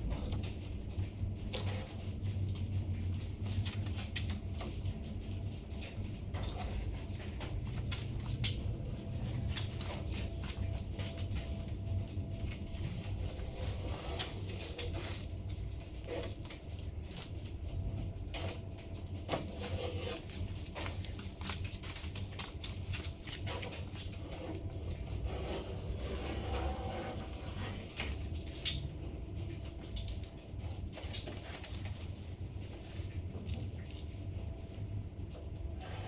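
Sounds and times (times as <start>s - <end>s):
paper rustling: 9.3s - 17.4s.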